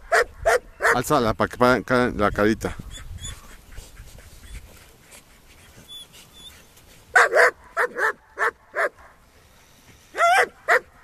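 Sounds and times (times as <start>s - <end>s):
puppy barking: 0.1s - 1.0s, 7.1s - 9.2s, 10.2s - 11.0s.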